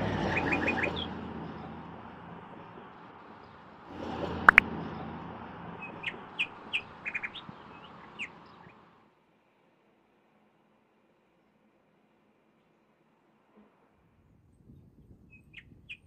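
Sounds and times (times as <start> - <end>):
steady outdoor hiss: 0.0 - 16.0
small birds chirping: 0.1 - 3.8, 4.5 - 8.9.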